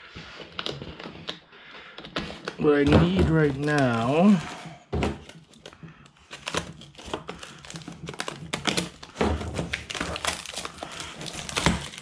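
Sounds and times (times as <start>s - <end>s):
cardboard rustling: 0.0s - 12.0s
plastic bags crinkling: 2.0s - 4.6s, 5.2s - 12.0s.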